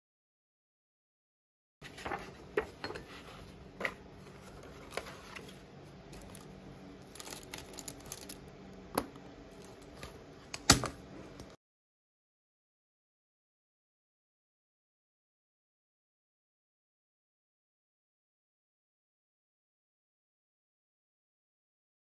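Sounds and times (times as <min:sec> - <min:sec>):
plastic pouch rustling: 0:06.1 - 0:08.5.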